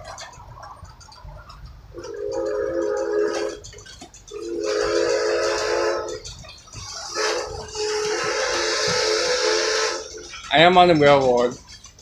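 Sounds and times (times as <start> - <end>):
steam locomotive whistle: 2.0 - 10.5.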